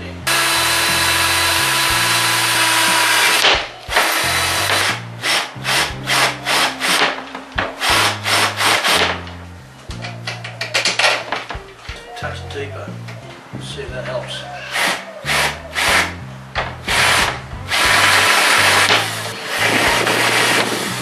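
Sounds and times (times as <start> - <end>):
cordless drill boring: 0.3 - 7.0, 16.9 - 20.9.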